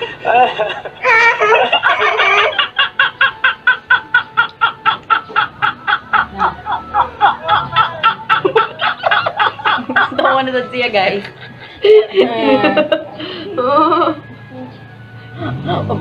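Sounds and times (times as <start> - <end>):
high-pitched human laughter: 0.0 - 10.2, 15.3 - 16.0.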